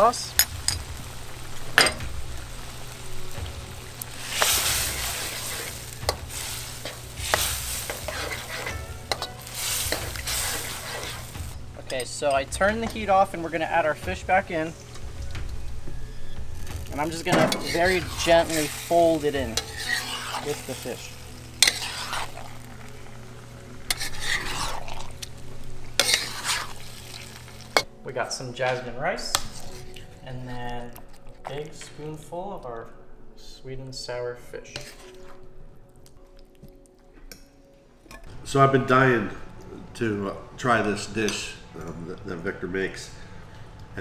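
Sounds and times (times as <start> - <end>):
sauce bubbling and sizzling: 0.0 - 28.1, 29.3 - 31.8, 34.8 - 37.1, 38.0 - 44.0
metal spatula scraping a wok: 4.1 - 12.0, 16.0 - 27.9, 29.3 - 30.2, 34.7 - 35.4
steady low hum: 38.2 - 44.0.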